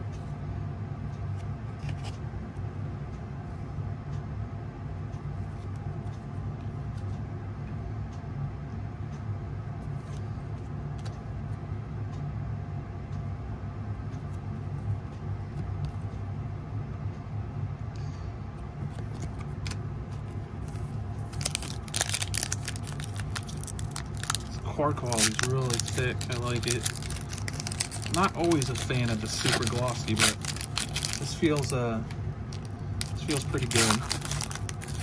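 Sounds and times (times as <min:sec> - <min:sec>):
steady low hum: 0:00.0 - 0:35.0
trading cards flipped by hand: 0:18.9 - 0:19.8, 0:25.1 - 0:31.8, 0:32.6 - 0:35.0.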